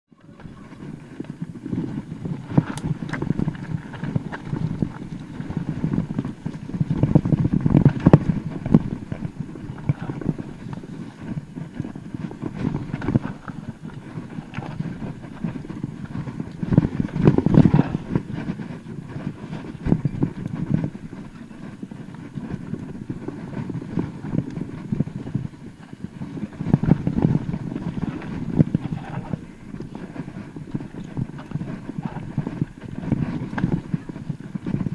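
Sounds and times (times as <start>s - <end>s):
bike chain rattling: 2.0s - 5.3s.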